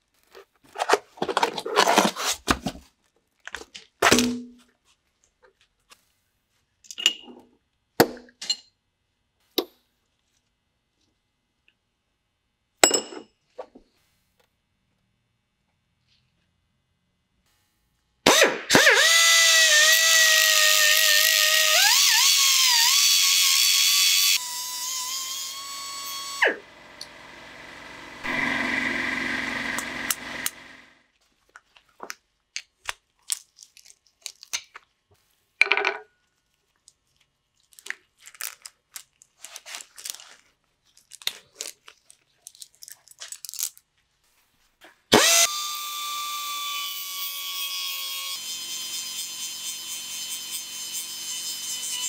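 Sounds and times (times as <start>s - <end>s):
angle grinder grinding: 18.8s - 31.0s, 45.1s - 52.0s.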